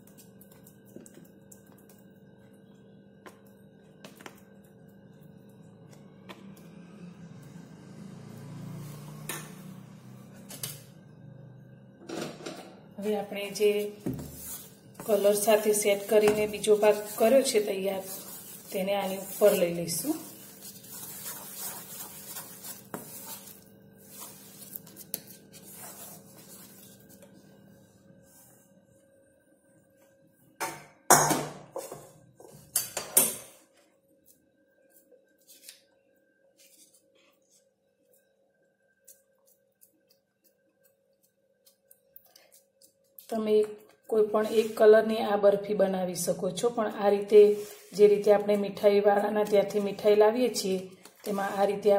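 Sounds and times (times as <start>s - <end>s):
spoon spreading soft mixture: 13.6s - 28.6s, 36.6s - 44.8s.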